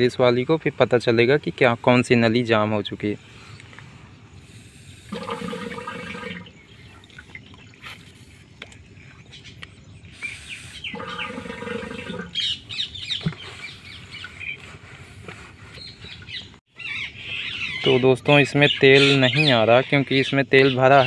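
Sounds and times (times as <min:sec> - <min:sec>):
small birds chirping: 0:00.0 - 0:21.0
drawn-out animal calls: 0:10.8 - 0:14.6.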